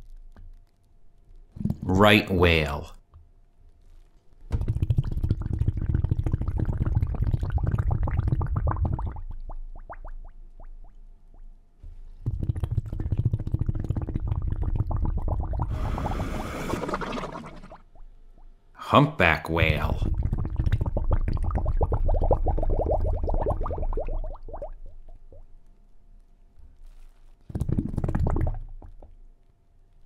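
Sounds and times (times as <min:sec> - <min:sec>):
whale calls: 0:15.7 - 0:17.8.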